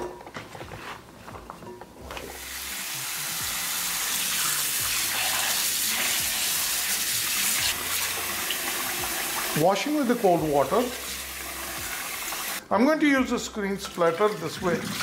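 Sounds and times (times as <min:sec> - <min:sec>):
tap water running into bowl: 0:07.6 - 0:09.8.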